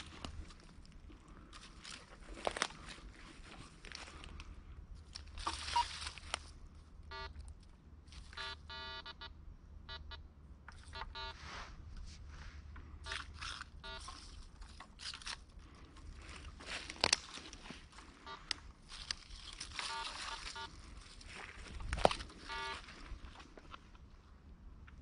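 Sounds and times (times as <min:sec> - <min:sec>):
footsteps in dry leaves: 0:00.0 - 0:04.5, 0:05.1 - 0:06.6, 0:15.0 - 0:23.7
metal detector beeping: 0:05.4 - 0:06.1, 0:07.1 - 0:07.4, 0:08.3 - 0:10.2, 0:10.8 - 0:11.4, 0:13.8 - 0:14.2, 0:18.2 - 0:18.6, 0:19.6 - 0:20.8, 0:22.3 - 0:22.9.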